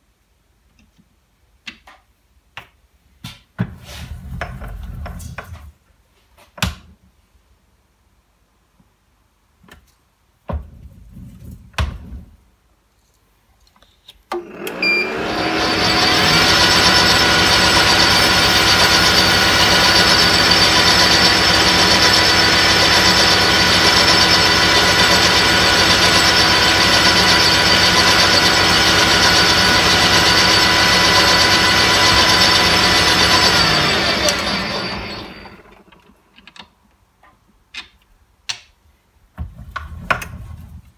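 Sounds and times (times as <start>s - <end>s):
lathe motor running: 14.4s - 35.8s
gear whine: 14.7s - 36.0s.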